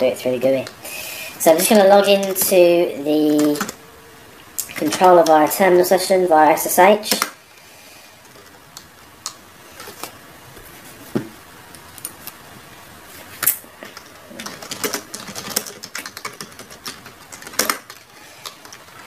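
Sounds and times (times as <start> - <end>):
typing on computer keyboard: 13.8 - 19.0.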